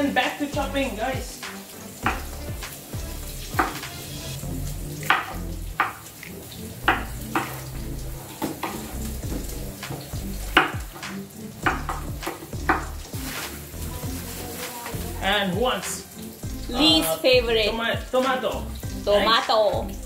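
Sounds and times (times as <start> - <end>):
knife chopping on wooden board: 2.0 - 2.3, 5.0 - 6.0, 10.6 - 12.9.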